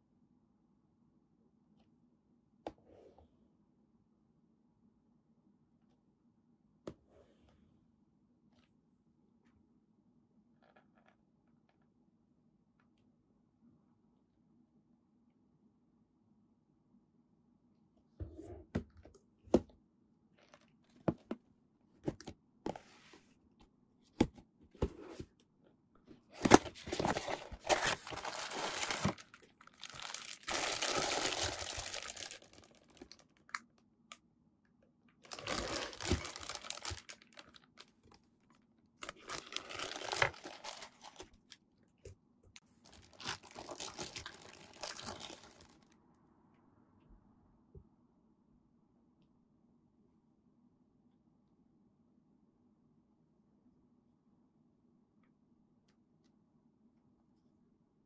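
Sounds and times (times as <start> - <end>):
plastic bags crinkling: 26.4 - 33.3, 35.2 - 38.2, 39.0 - 41.4, 42.8 - 45.8.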